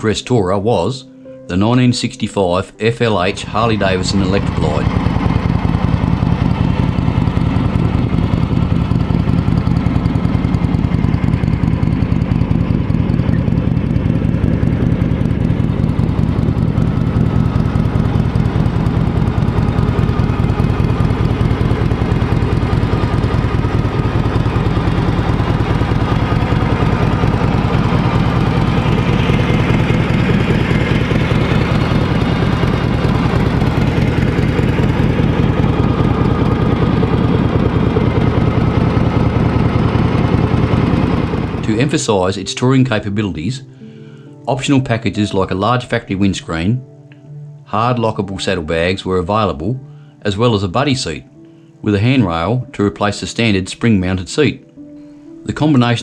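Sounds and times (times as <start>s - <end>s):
motorcycle engine idling: 3.2s - 42.2s.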